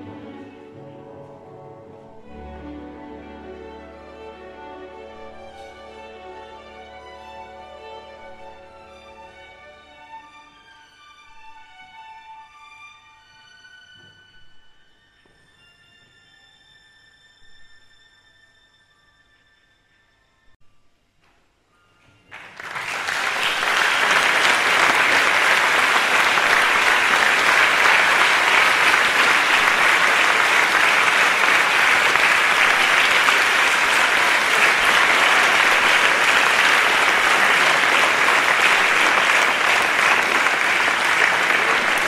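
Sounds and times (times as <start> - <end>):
large crowd applauding: 22.3 - 42.0.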